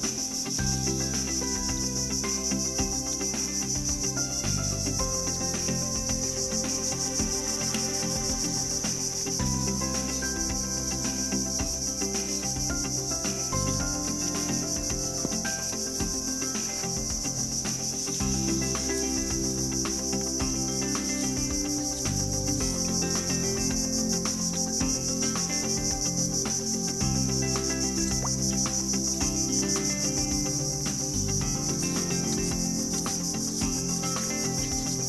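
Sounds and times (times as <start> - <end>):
high-pitched insect drone: 0.0 - 35.0
soft music with held chords: 0.0 - 35.0.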